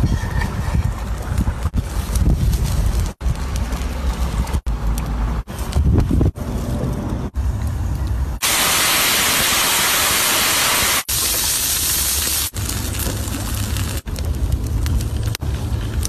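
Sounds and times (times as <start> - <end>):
wind rumbling on microphone: 0.0 - 8.4
steam hissing from pan over fire: 8.4 - 14.1.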